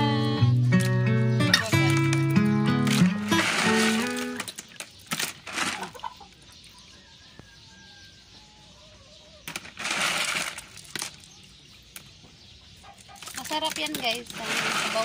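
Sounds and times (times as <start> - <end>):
wet shells clattering in water: 0.8 - 6.1, 9.5 - 12.2, 13.2 - 15.0.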